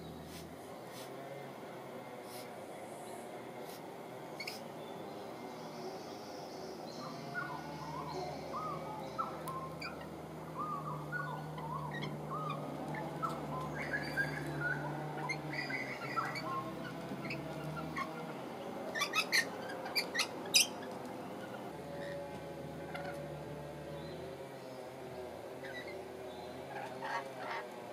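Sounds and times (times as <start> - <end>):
lorikeets chirping: 4.3 - 22.2, 25.6 - 27.7.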